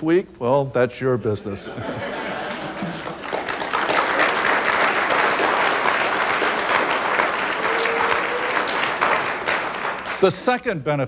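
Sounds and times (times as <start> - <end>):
audience applause: 2.3 - 10.6.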